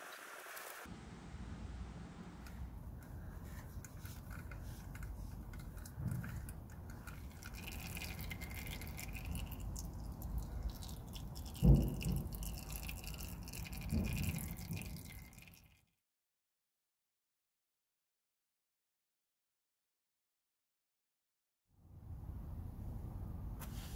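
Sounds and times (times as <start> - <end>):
oil dripping into drain pan: 3.7 - 15.8.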